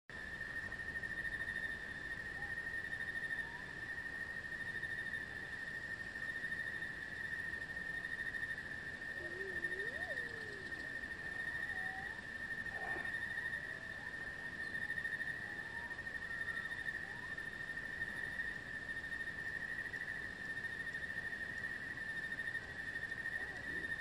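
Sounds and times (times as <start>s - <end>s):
high-pitched insect trill: 0.2s - 24.0s
faint wavering call: 9.1s - 12.2s.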